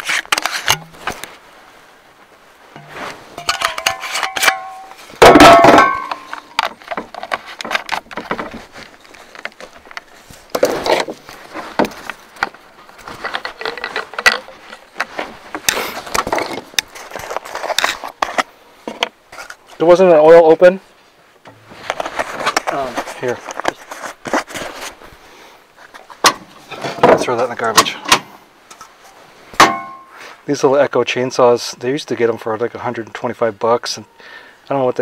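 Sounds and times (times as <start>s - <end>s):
loud ringing metal clank: 2.8s - 6.4s, 29.6s - 30.1s
metal can clinks and scrapes: 2.8s - 8.0s.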